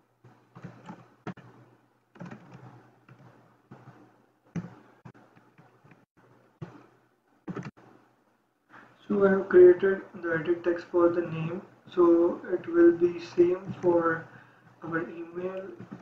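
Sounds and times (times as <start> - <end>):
keyboard keystrokes: 0.5 - 1.5, 2.2 - 3.3, 7.5 - 7.7.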